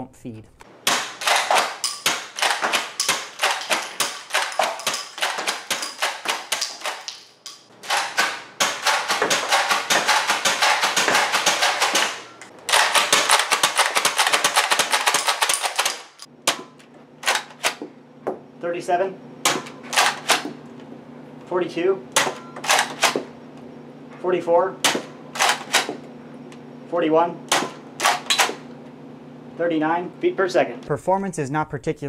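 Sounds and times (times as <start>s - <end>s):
toy blaster clacking: 1.2s - 16.3s.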